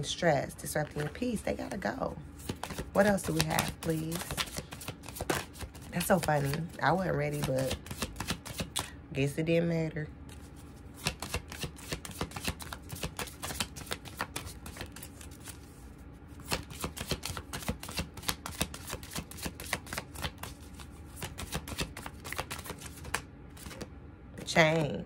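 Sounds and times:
cards being shuffled: 2.4s - 8.9s, 10.3s - 23.9s.

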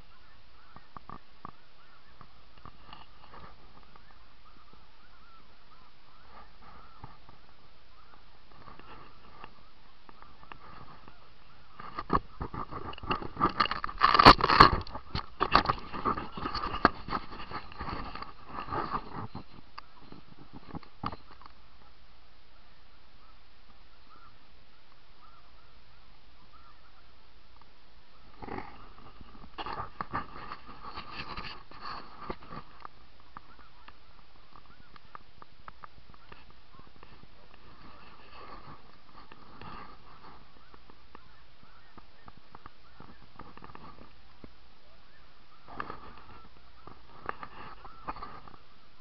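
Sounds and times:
geese honking: 0.0s - 49.0s
knocks and rustling: 11.8s - 21.5s.

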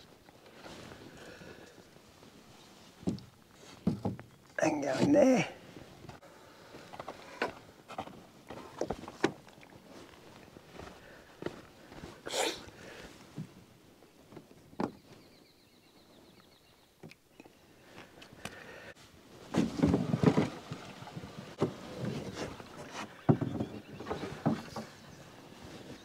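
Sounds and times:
canoe knocking and bumping: 3.0s - 5.4s, 19.5s - 25.1s.

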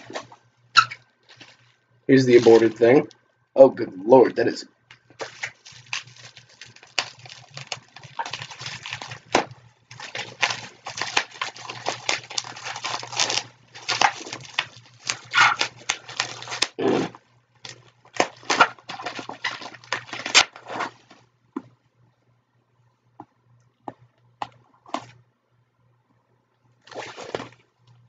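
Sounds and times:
packaging rustling and crinkling: 0.0s - 3.1s, 5.1s - 16.8s, 17.6s - 21.3s, 26.9s - 27.7s.

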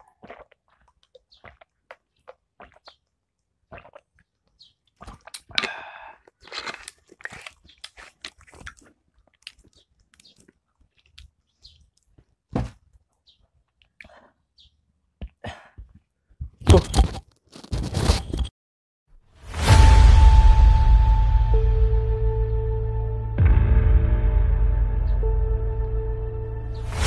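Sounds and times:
crunching and chewing crisps: 3.7s - 12.4s, 16.7s - 18.2s.

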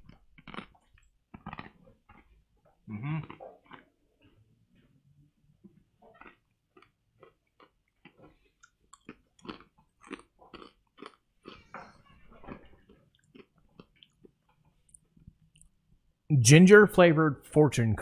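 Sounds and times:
crunching cookie: 0.0s - 4.4s, 6.2s - 11.7s.

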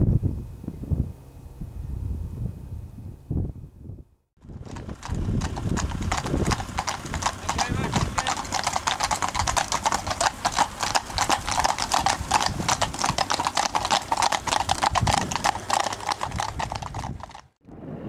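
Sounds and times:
horses hooves clip-clopping: 4.4s - 17.6s.

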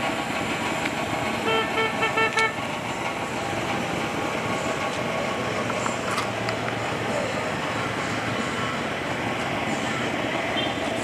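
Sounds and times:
outdoor background noise: 0.0s - 11.0s
horn tooting: 1.4s - 2.6s.

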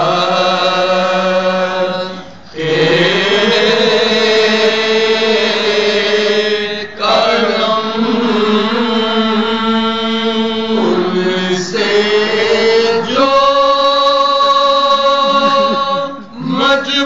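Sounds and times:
men singing a lament: 0.0s - 17.0s
lead voice at microphone: 15.2s - 17.0s.

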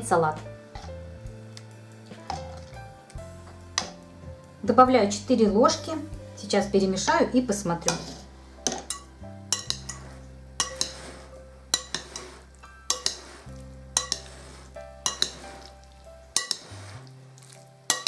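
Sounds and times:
background music: 0.0s - 18.0s
spoon clinking in glass bowl: 8.7s - 10.0s, 10.6s - 11.1s, 11.7s - 13.4s, 14.0s - 14.4s, 15.0s - 15.8s, 16.4s - 16.8s.

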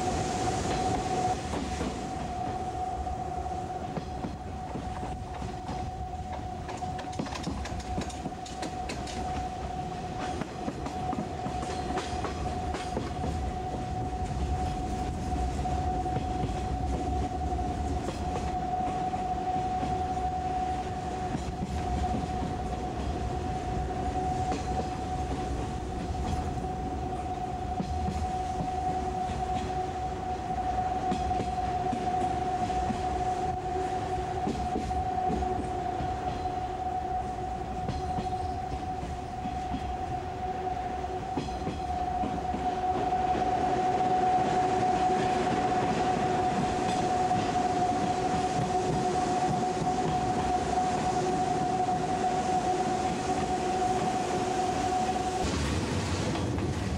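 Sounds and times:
constant high whine: 0.0s - 56.9s
rumble of train wheels on rail: 0.0s - 56.9s
faint rail-joint clicks: 3.9s - 13.8s.

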